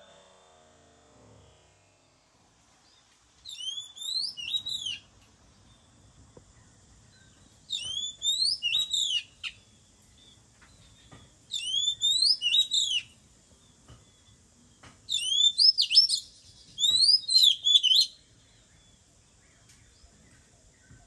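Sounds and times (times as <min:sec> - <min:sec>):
bird singing whistled phrase: 0:03.5 - 0:05.1, 0:07.7 - 0:09.5, 0:11.5 - 0:13.1, 0:15.1 - 0:18.2.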